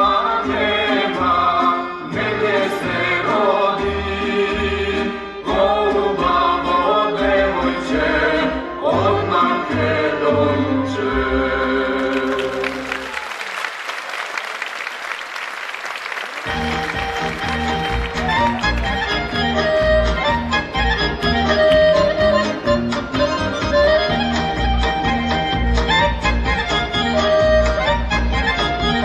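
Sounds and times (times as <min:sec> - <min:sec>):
children singing folk song: 0:00.0 - 0:12.8
instrumental accompaniment with bass: 0:00.0 - 0:13.1, 0:16.4 - 0:29.0
audience applauding: 0:12.0 - 0:19.7.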